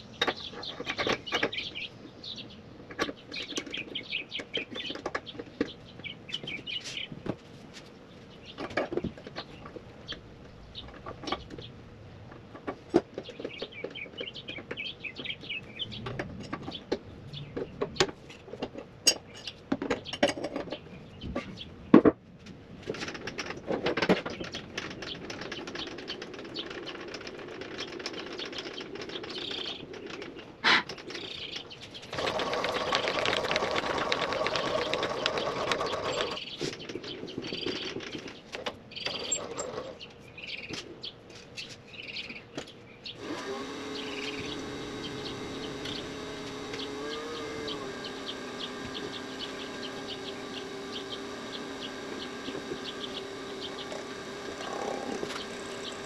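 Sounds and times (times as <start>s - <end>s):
milling machine cutting metal: 43.2s - 56.0s.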